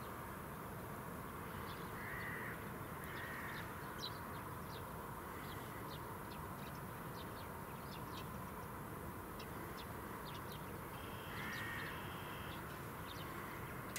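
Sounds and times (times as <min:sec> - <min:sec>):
steady background noise: 0:00.0 - 0:13.9
small birds chirping: 0:01.2 - 0:13.9
crow cawing: 0:02.0 - 0:03.6, 0:11.0 - 0:12.6.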